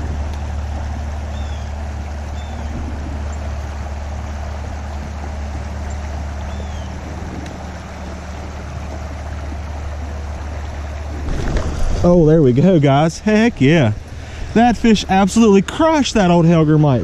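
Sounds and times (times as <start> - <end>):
wind on microphone: 0.0 - 1.5, 2.4 - 3.9
countryside background hiss: 0.0 - 17.0.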